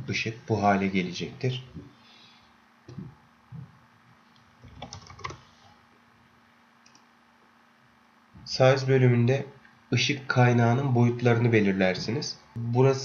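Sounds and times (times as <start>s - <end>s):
faint steady hum: 0.0s - 13.0s
keyboard and mouse clicks: 4.6s - 5.4s.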